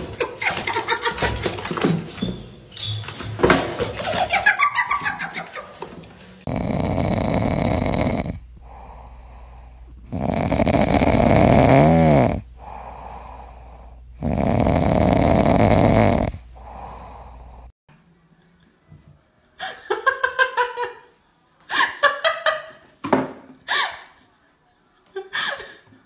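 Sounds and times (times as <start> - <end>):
dog snoring: 6.4 - 17.7.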